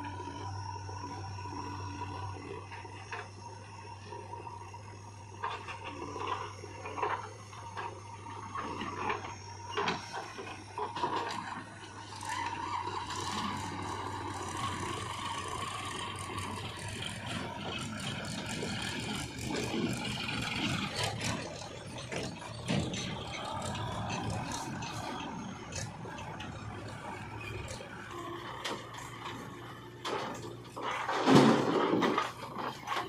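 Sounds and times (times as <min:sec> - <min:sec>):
diesel engines running: 0:00.0 - 0:33.0
soil loading knocks and rattles: 0:08.7 - 0:33.0.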